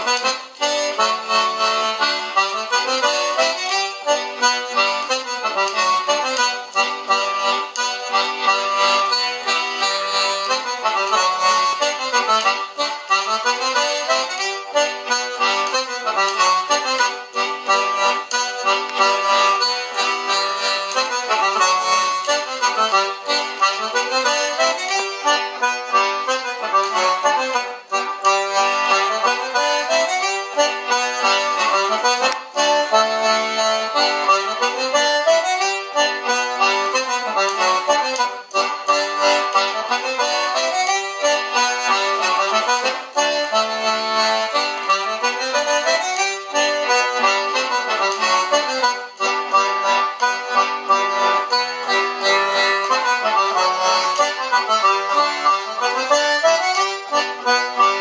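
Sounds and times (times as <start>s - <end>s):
accordion dance tune: 0.0s - 58.0s.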